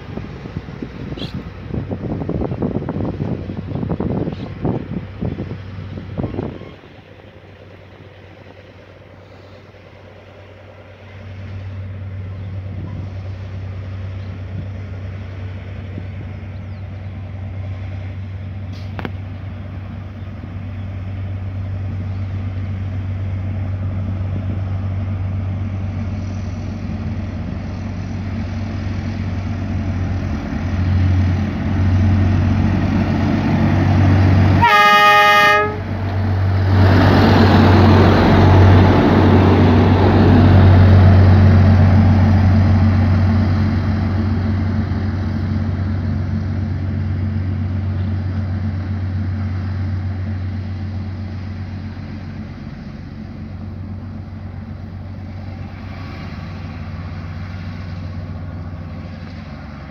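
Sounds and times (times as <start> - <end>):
rail vehicle engine humming: 0.0 - 59.9
short horn blast: 34.6 - 35.9.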